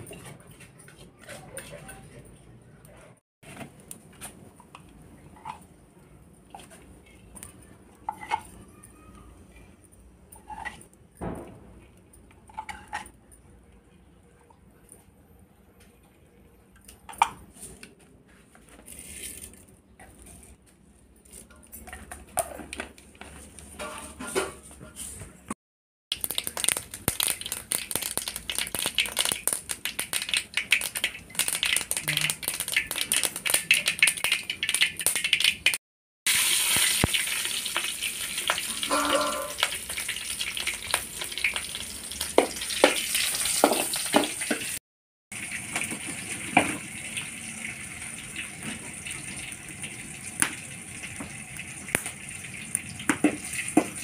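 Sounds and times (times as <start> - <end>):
oil sizzling in a pan: 26.1 - 44.8, 45.4 - 54.0
pan clinking: 38.7 - 39.8.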